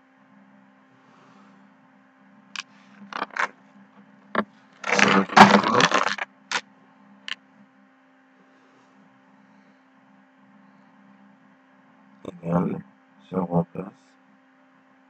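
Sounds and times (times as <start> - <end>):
clattering rattling scrape: 3.2 - 3.5, 4.8 - 6.2.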